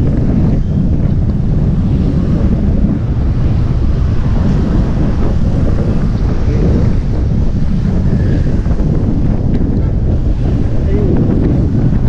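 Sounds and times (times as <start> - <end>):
wind rumble on microphone: 0.0 - 12.0.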